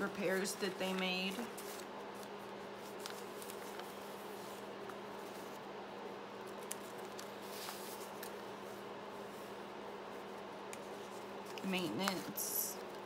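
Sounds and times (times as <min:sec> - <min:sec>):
steady low hum: 0:00.0 - 0:13.0
paper rustling: 0:00.4 - 0:05.6, 0:06.4 - 0:09.6.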